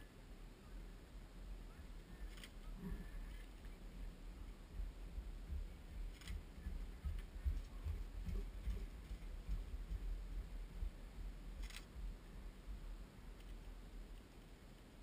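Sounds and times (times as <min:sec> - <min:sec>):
wind buffeting microphone: 0:02.0 - 0:13.4.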